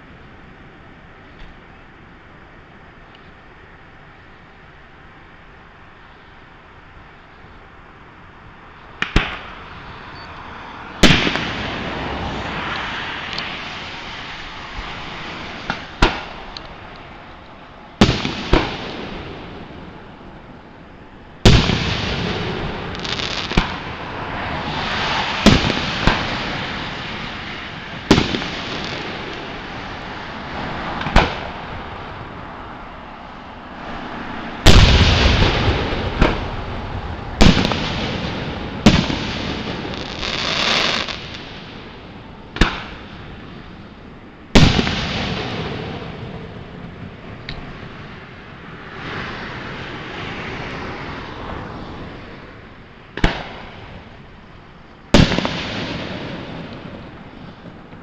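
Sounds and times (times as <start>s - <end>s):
rolling echo: 11.0s - 17.0s, 18.0s - 32.4s, 34.6s - 48.4s, 55.1s - 58.0s.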